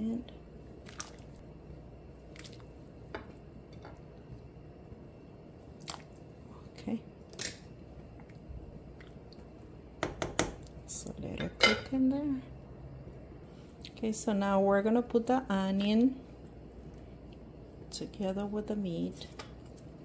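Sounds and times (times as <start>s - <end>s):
meat plopping into water: 0.8s - 1.3s
spoon knocking metal pot: 10.0s - 10.6s.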